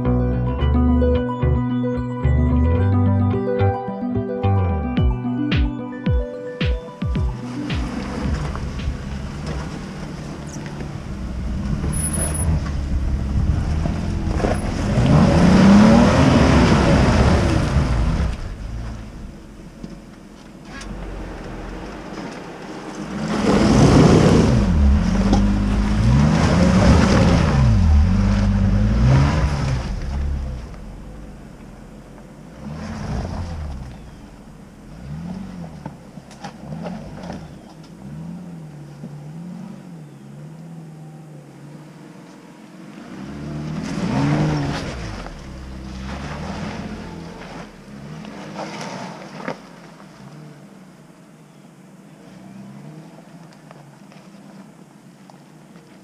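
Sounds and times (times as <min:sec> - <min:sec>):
engines revving: 0:07.3 - 0:51.2.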